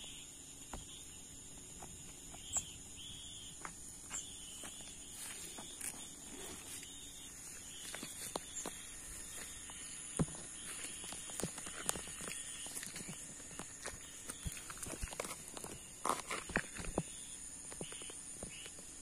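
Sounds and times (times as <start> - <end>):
insects chirring: 0.0 - 19.0
footsteps on gravel: 3.5 - 17.2.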